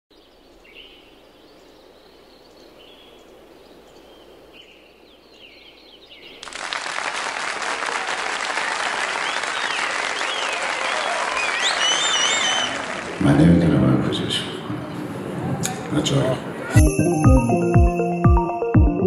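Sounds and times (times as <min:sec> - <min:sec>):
faint birds chirping: 0:00.1 - 0:06.4
audience applause: 0:06.4 - 0:16.3.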